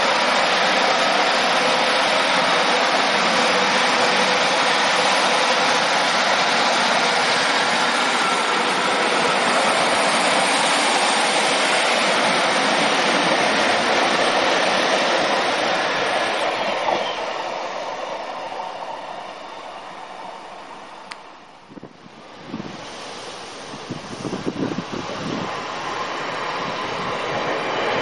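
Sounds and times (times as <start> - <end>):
diesel train passing: 0.0 - 28.0.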